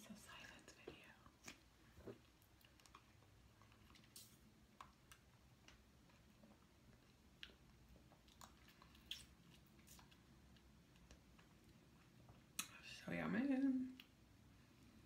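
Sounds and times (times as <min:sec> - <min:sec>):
chewing: 0:01.4 - 0:12.7.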